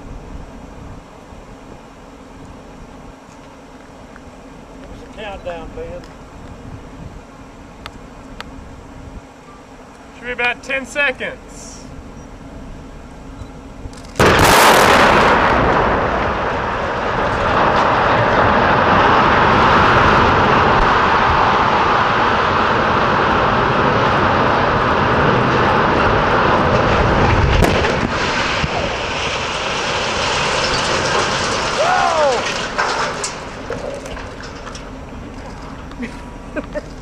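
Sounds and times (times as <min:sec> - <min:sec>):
smokestack collapsing rumble: 0:13.7 - 0:37.0
sharp crack: 0:14.0 - 0:36.1
explosive blast: 0:14.2 - 0:34.4.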